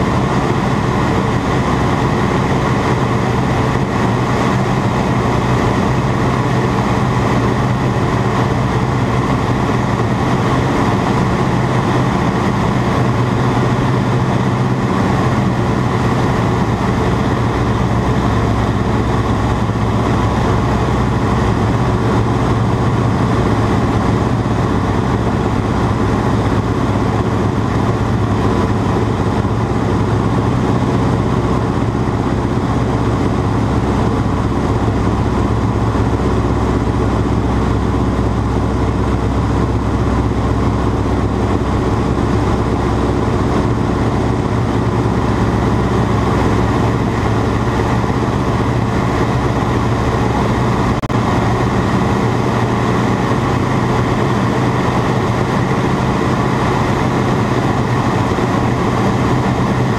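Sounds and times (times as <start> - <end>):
biplane engine running: 0.0 - 59.9.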